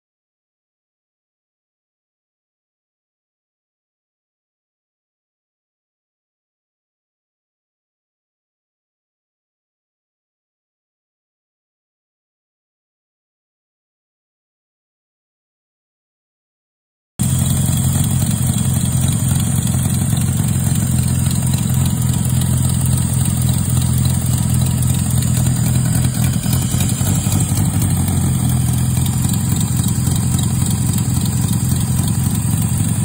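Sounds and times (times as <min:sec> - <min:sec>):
car engine idling: 0:17.2 - 0:33.0.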